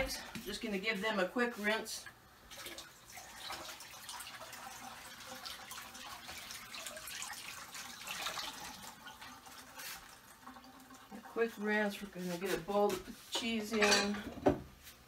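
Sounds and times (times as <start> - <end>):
faucet water splashing: 2.4 - 11.6.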